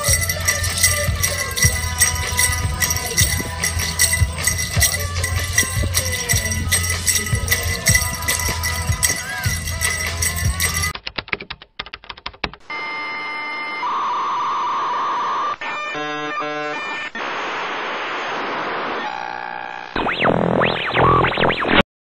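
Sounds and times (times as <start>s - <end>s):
static hiss: 16.8s - 19.3s
stuttering glitch: 16.8s - 21.8s.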